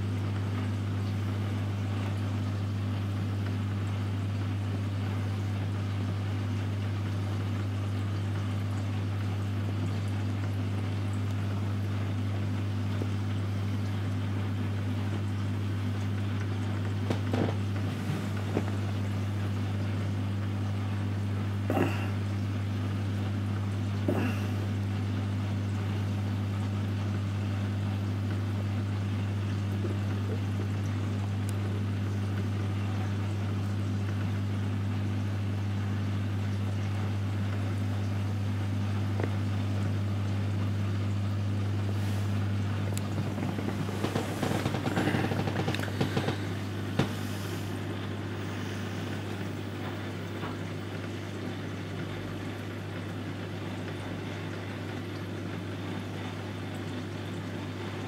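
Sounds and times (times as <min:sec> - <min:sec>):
aquarium pumps humming: 0:00.0 - 0:58.0
moving water: 0:36.0 - 0:58.0.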